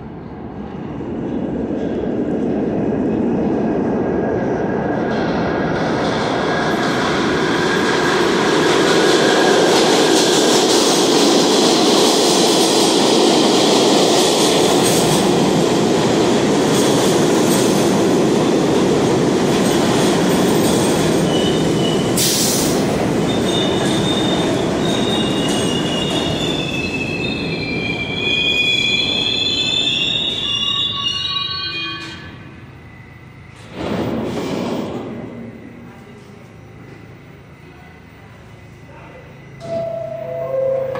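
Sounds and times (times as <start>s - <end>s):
train wheels rumbling on rails: 0.0s - 31.2s, 31.9s - 40.9s
brakes squealing: 21.2s - 33.8s.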